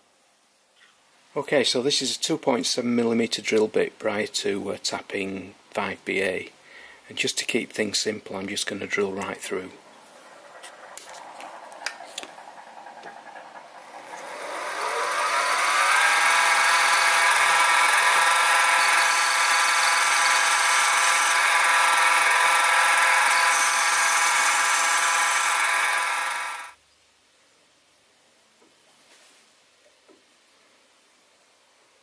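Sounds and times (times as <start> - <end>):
mill spindle motor whining: 10.3 - 26.8
drill bit cutting brass: 13.5 - 26.8.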